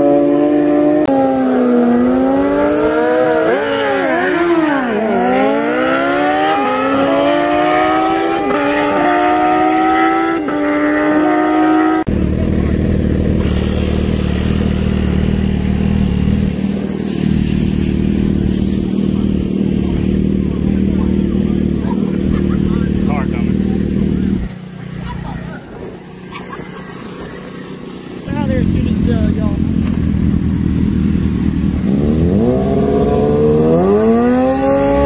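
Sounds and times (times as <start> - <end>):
motorcycles accelerating hard: 0.0 - 35.0
motorcycle engines idling: 12.1 - 35.0.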